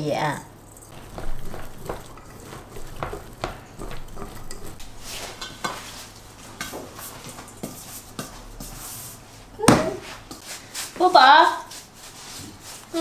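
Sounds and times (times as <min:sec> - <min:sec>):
metal bowls clinking and knocking: 0:00.8 - 0:04.8.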